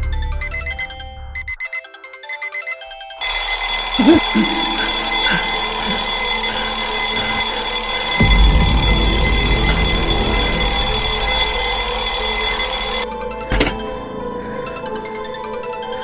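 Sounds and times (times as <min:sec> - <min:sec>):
twin-bell alarm clock ringing: 0:03.2 - 0:13.1.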